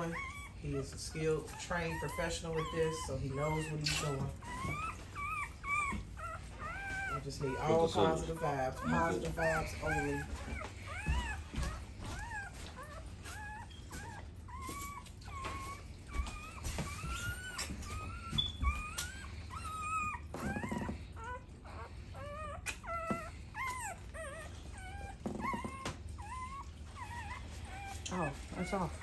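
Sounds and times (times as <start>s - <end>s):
dog whimpering: 0.0s - 29.0s.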